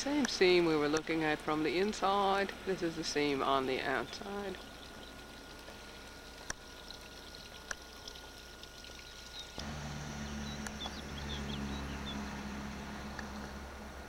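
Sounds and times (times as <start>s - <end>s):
faint outdoor ambience: 0.0s - 14.0s
low steady hum: 0.0s - 14.0s.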